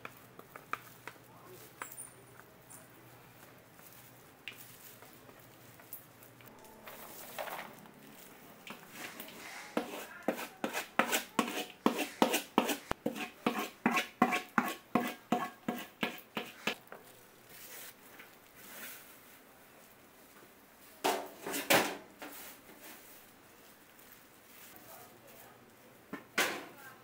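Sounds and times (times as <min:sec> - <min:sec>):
kitchen utensil knocking and scraping: 0:09.8 - 0:16.8.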